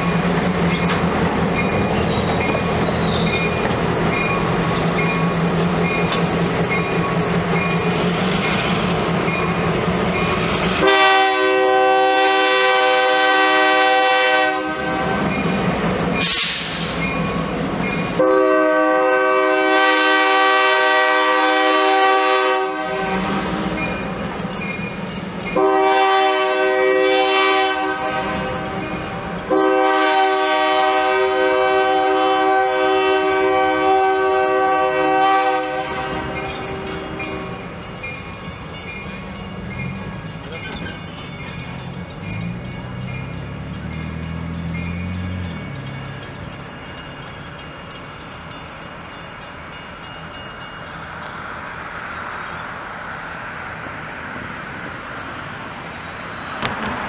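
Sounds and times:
crossing signal bell dinging: 0:00.0 - 0:10.5, 0:22.8 - 0:26.0, 0:28.0 - 0:29.8, 0:35.9 - 0:52.7
diesel locomotive running: 0:00.0 - 0:57.0
locomotive air horn blasts: 0:10.7 - 0:15.3, 0:18.2 - 0:23.6, 0:25.6 - 0:28.6, 0:29.5 - 0:37.6.

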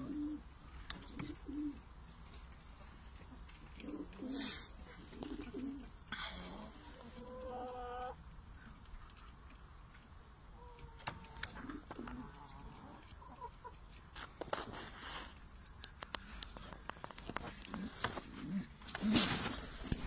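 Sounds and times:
pigeons cooing: 0:00.0 - 0:02.0, 0:03.3 - 0:08.2, 0:10.6 - 0:13.8, 0:16.8 - 0:20.0
brief rustles: 0:14.2 - 0:20.0.

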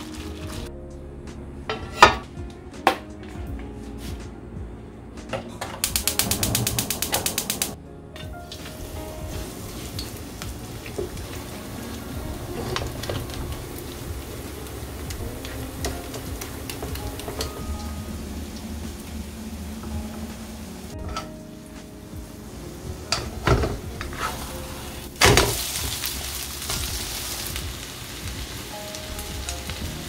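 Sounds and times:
rapid sharp clicks: 0:05.8 - 0:07.8.

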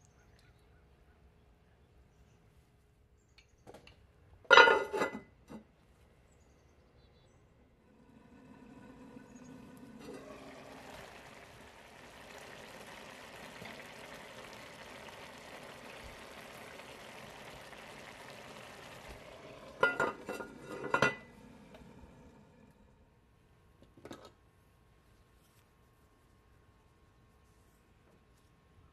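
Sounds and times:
pot lid clinking: 0:04.5 - 0:05.2, 0:19.6 - 0:21.3
rice bubbling in a pot: 0:07.9 - 0:22.8.

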